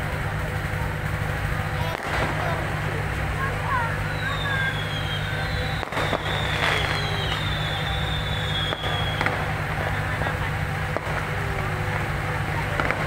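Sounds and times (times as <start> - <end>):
fireworks cracking: 0.0 - 13.0
steady low noise: 0.0 - 13.0
firework whistles falling in pitch: 3.9 - 10.0.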